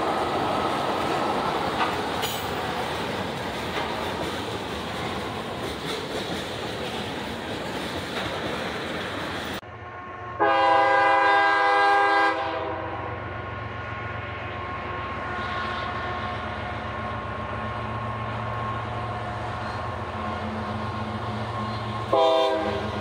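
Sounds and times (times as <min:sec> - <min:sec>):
locomotive engine rumble: 0:00.0 - 0:10.8, 0:12.7 - 0:23.0
locomotive horn: 0:09.8 - 0:13.4, 0:21.5 - 0:23.0.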